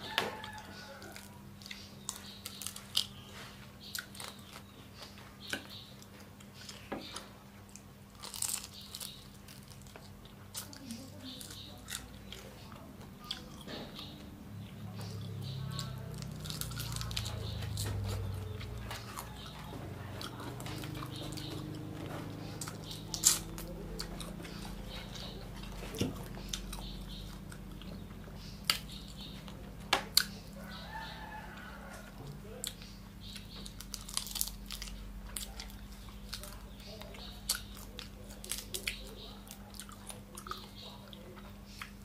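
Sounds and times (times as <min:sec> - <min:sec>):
chewing and crunching: 0:00.0 - 0:42.0
steady low hum: 0:00.0 - 0:42.0.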